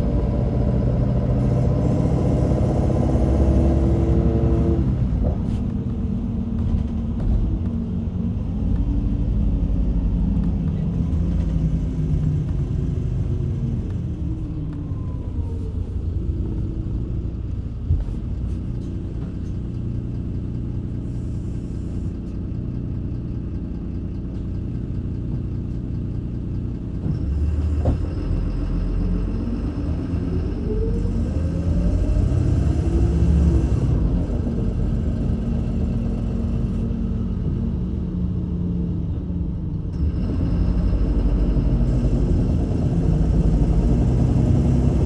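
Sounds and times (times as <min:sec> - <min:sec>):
bus engine and road rumble: 0:00.0 - 0:45.0.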